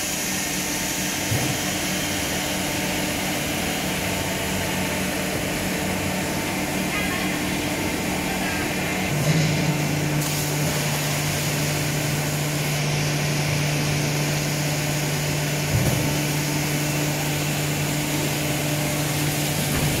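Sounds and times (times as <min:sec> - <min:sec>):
machine humming and whirring: 0:00.0 - 0:20.0.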